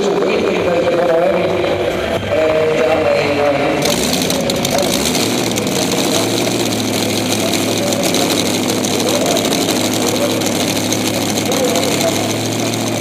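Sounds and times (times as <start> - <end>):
tractor engine idling: 3.8 - 13.0.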